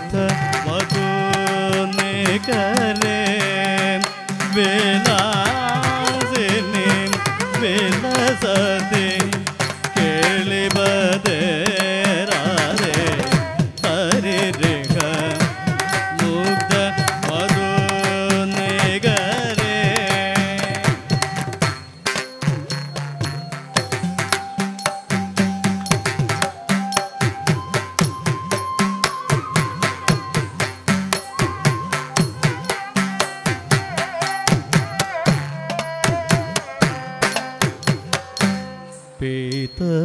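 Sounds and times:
person singing: 0.0s - 21.6s, 31.2s - 40.0s
violin melody: 0.0s - 28.4s, 29.0s - 39.2s
hand-drum strokes: 0.0s - 39.0s.

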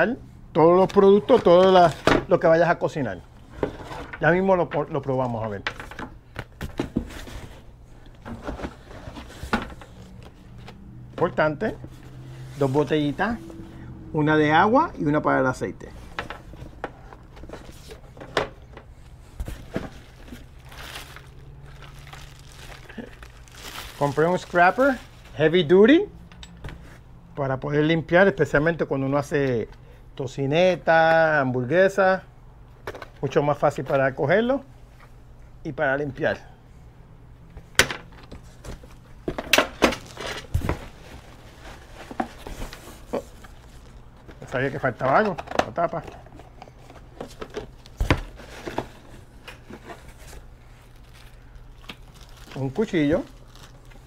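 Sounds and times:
rummaging in cardboard box: 6.6s - 13.4s, 16.0s - 25.4s, 38.3s - 54.0s
plastic wrapper crinkling: 19.9s - 25.4s, 50.7s - 54.0s.

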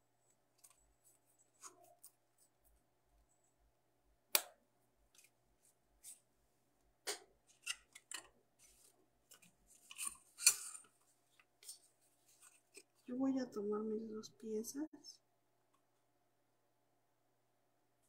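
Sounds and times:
sharp snap: 4.3s - 4.6s.

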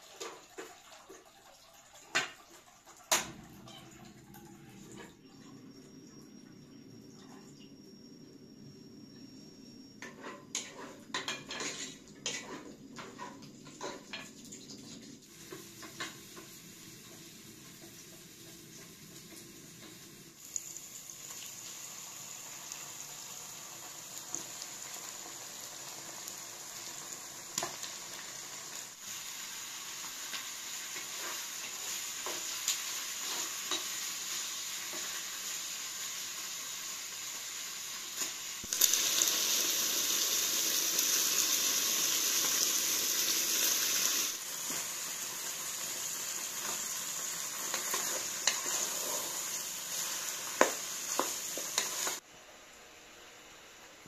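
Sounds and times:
onions sizzling in oil: 8.6s - 52.3s
spoon and dishes clinking: 10.0s - 14.4s.

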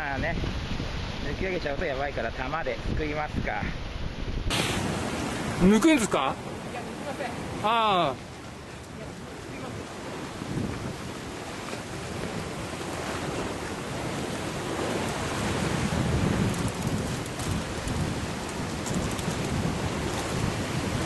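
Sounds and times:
wind buffeting microphone: 0.0s - 21.0s
surf breaking against rocks: 4.3s - 21.0s.

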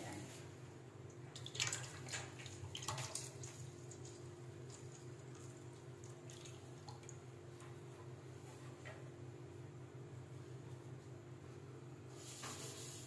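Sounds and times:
oil trickling into metal pot: 1.3s - 7.2s.

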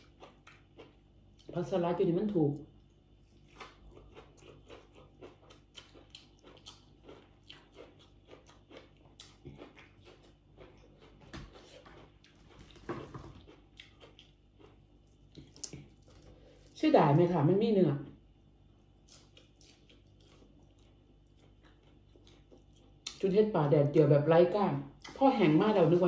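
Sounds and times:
person chewing crunchy food: 0.0s - 1.6s, 2.8s - 16.8s, 18.8s - 23.2s.

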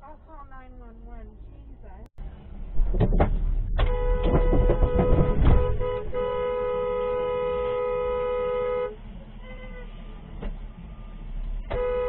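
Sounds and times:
loud knocks and rumbling: 2.7s - 6.2s
car horn blast: 3.8s - 10.0s, 11.7s - 12.0s.

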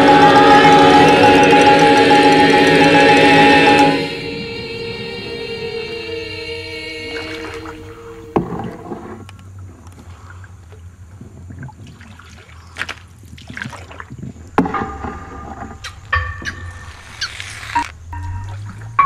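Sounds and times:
scattered knocks and clicks: 0.0s - 3.9s
low steady hum: 0.0s - 9.8s.

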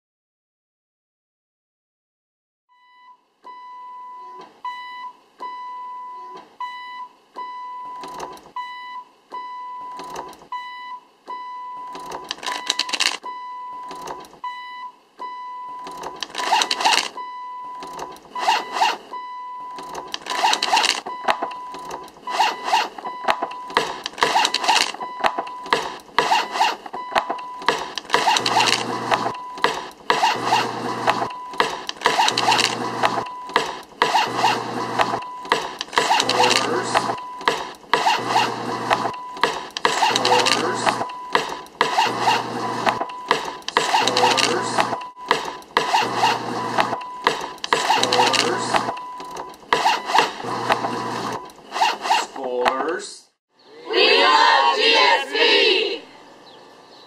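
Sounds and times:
electronic beep: 2.8s - 29.9s, 31.2s - 33.8s, 35.1s - 37.7s, 39.0s - 41.6s, 42.9s - 45.5s, 46.3s - 50.4s.

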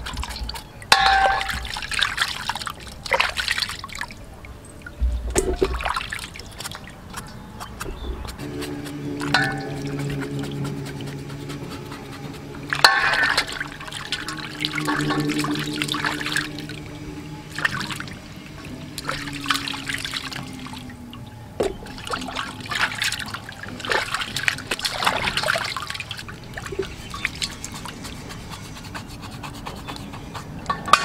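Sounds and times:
water splashing in a steel bowl: 0.0s - 28.7s.

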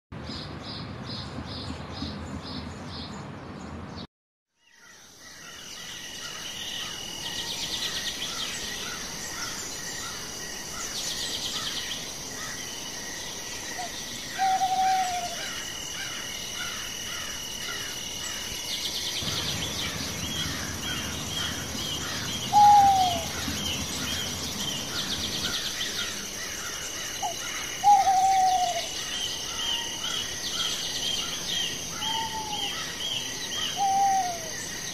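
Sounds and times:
bird chirps: 18.8s - 34.9s
insect trilling: 19.1s - 34.9s.

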